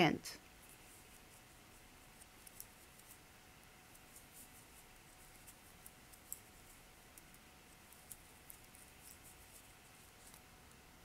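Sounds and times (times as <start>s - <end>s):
knitting needles clicking: 5.3s - 10.4s.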